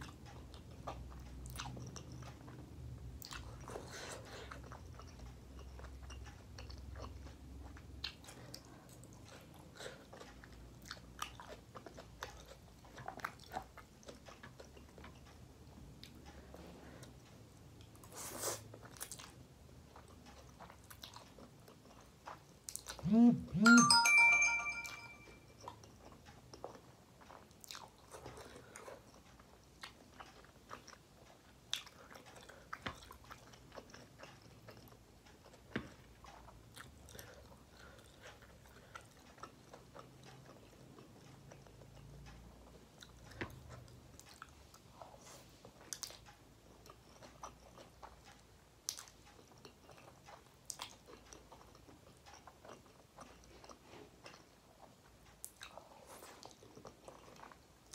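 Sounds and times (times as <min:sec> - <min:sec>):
chewing noodles: 0:00.0 - 0:23.1, 0:25.5 - 0:57.9.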